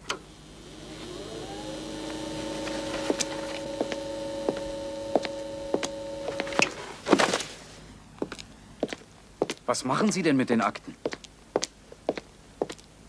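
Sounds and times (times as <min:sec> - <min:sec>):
paper files slapping concrete floor: 0:06.4 - 0:07.8.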